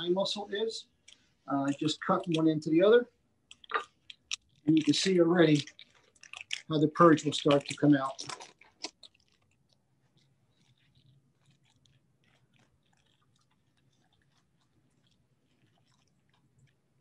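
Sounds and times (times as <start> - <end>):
plastic bag crinkling: 3.6 - 16.8.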